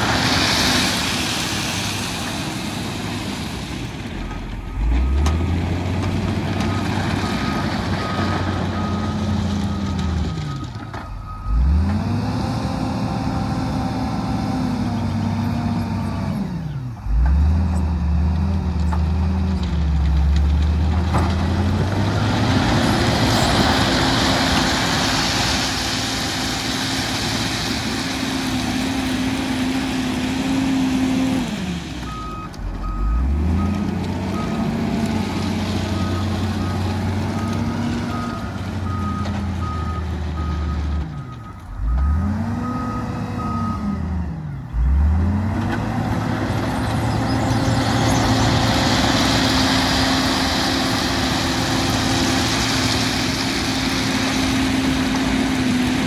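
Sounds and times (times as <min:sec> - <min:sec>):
heavy diesel engine revving: 0:11.3 - 0:19.6, 0:41.7 - 0:56.0.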